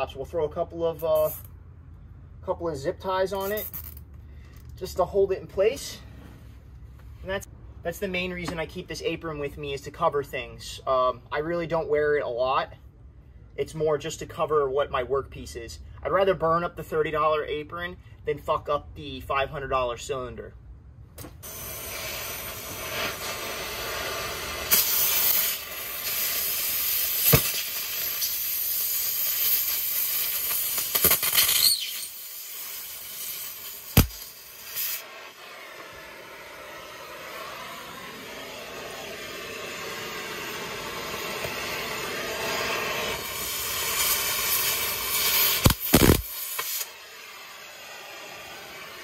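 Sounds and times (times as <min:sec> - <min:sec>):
torch sharp pops: 0:21.2 - 0:49.0
cutting torch hissing: 0:21.4 - 0:49.0.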